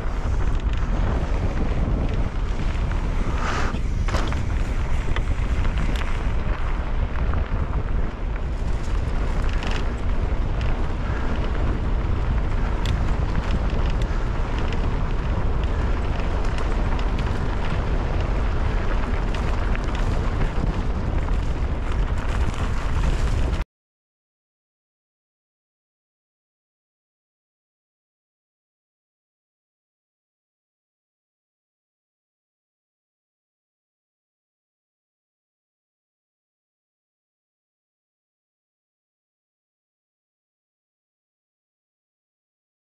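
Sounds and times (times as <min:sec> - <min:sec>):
bike clicks and rattles: 0:00.0 - 0:23.6
tyres rolling on gravel: 0:00.0 - 0:23.6
wind buffeting camera: 0:00.0 - 0:23.6.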